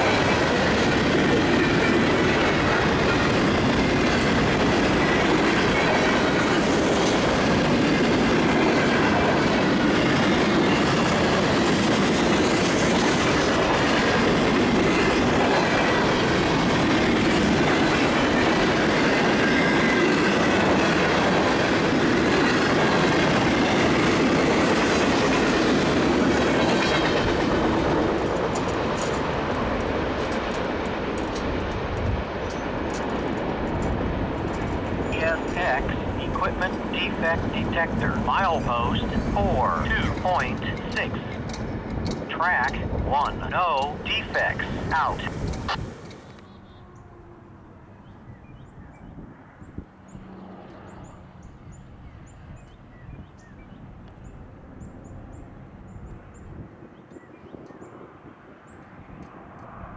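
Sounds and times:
train wheels rumbling on rails: 0.0 - 46.7.

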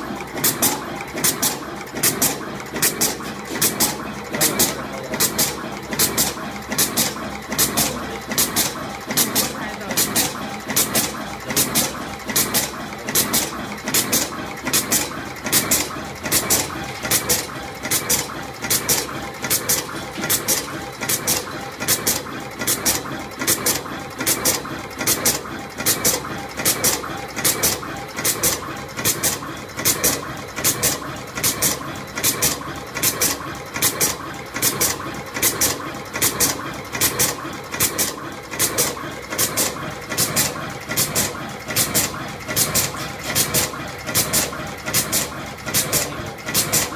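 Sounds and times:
crimping machine sharp clacks: 0.0 - 46.9
steady mechanical whir: 0.0 - 46.9.

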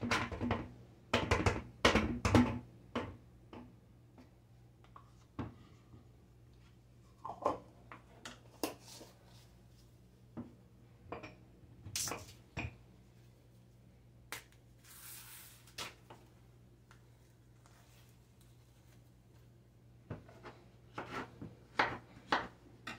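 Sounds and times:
banana being peeled: 14.3 - 16.2.

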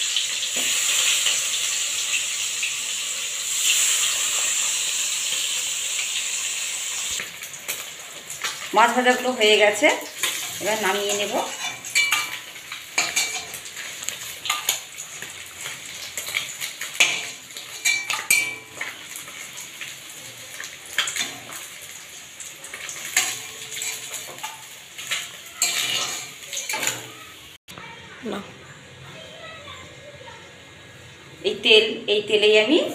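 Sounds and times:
metal spatula scraping a pan: 10.2 - 19.0, 22.8 - 27.3.

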